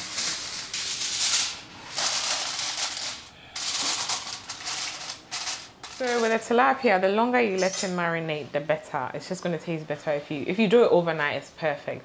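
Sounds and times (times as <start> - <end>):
aluminium foil crinkling: 0.0 - 6.5.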